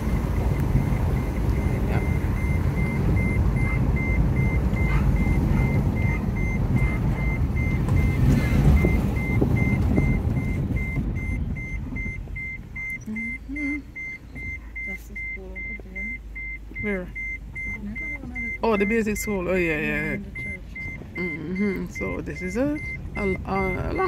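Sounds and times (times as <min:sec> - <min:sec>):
car road and engine noise: 0:00.0 - 0:24.0
electronic warning chime beeping: 0:00.1 - 0:24.0.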